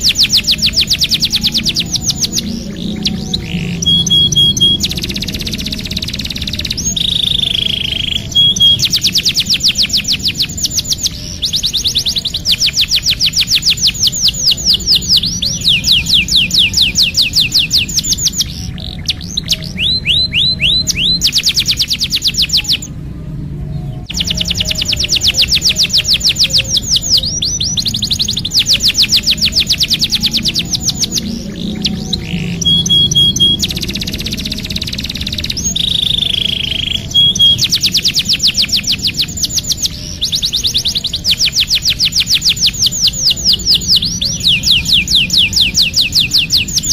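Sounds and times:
canary singing trills: 0:00.0 - 0:46.9.

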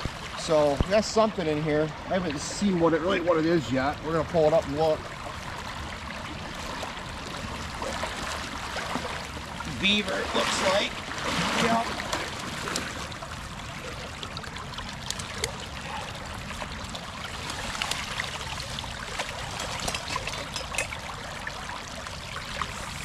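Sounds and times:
small splashes: 0:05.0 - 0:23.0
creek running fast: 0:06.1 - 0:19.9.

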